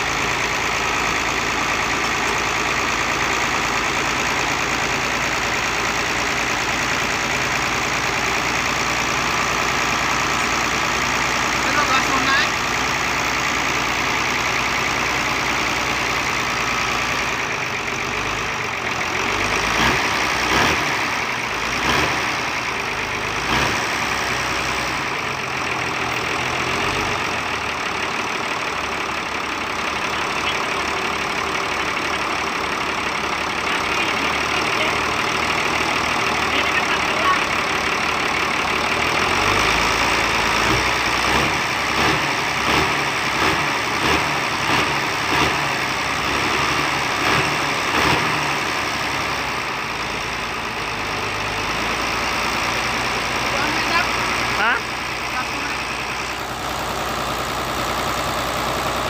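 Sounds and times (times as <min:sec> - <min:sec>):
diesel truck engine idling: 0:00.0 - 0:59.0.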